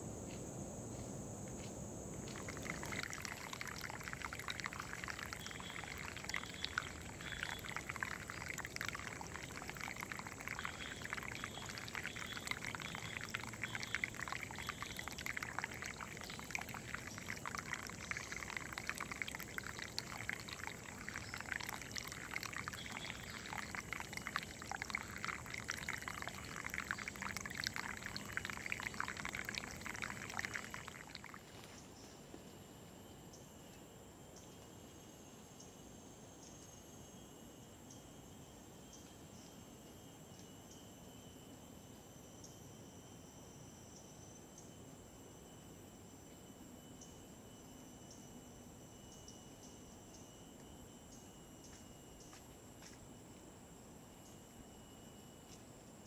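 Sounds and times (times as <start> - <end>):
stream trickling: 2.2 - 31.9, 47.0 - 53.0.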